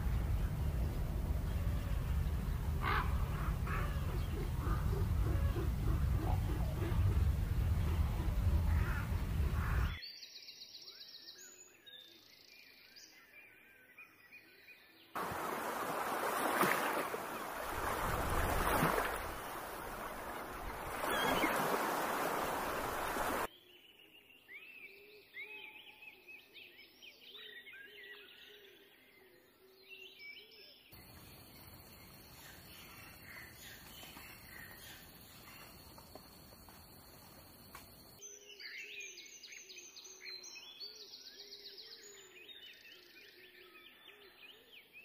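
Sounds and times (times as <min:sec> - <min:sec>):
surf washing on a beach: 0:15.2 - 0:23.5
small birds chirping: 0:15.2 - 0:24.8, 0:30.8 - 0:43.0.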